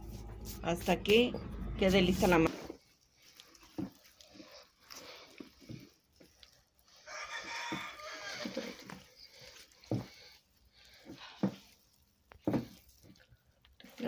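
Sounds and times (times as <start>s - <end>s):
dough being beaten: 2.2s - 13.3s
chicken calling: 7.0s - 9.1s.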